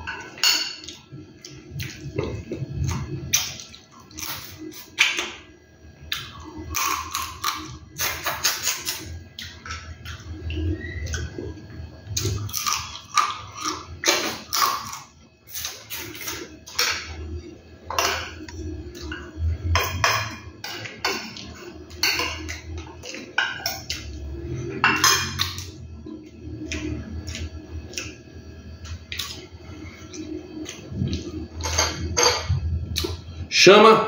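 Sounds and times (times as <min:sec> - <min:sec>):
person chewing: 0:06.1 - 0:16.5, 0:25.4 - 0:31.6, 0:32.8 - 0:33.3.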